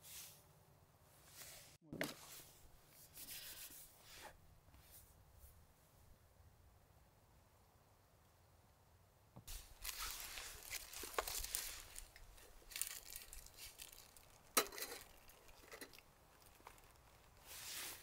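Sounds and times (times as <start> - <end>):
packaging crinkling and tearing: 9.6 - 18.0.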